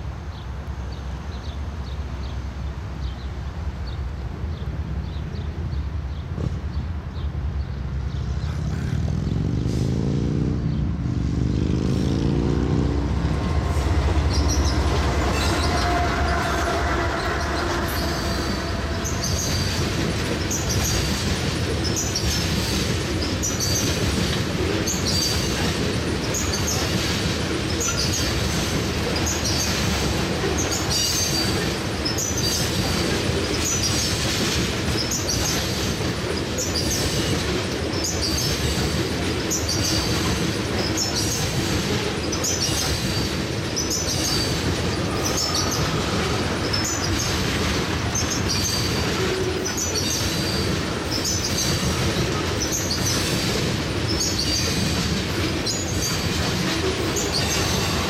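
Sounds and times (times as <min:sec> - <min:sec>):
diesel locomotive engines: 0:00.0 - 0:58.0
train rumbling: 0:00.0 - 0:58.0
wheels clattering over rail joints: 0:12.7 - 0:58.0
high wheel squeal: 0:13.2 - 0:24.0, 0:34.9 - 0:58.0.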